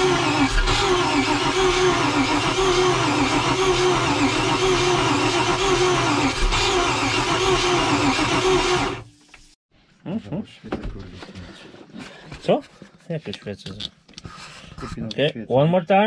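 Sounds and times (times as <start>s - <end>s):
starter motor cranking boat engine: 0.0s - 9.0s.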